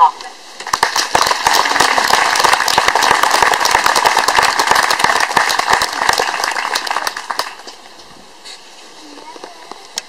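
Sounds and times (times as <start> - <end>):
audience applause: 0.6 - 7.8.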